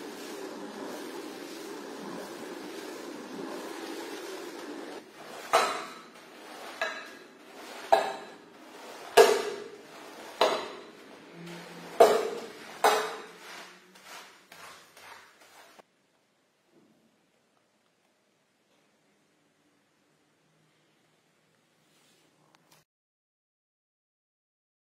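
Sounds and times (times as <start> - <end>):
floor scrubber machine noise: 0.0 - 15.8
squeegee scraping wet rug: 0.0 - 15.8.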